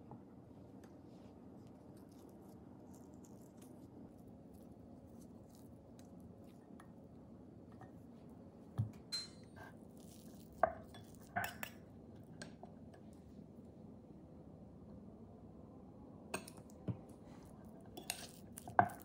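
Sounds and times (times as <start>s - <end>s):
fork mashing sweet potato: 8.8s - 13.2s, 16.3s - 19.0s
fork clinking against glass bowl: 9.1s - 9.6s, 10.7s - 11.8s.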